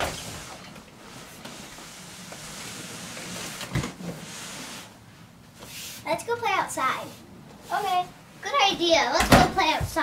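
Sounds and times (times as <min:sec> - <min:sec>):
cardboard box scraping across floor: 0:01.2 - 0:05.0.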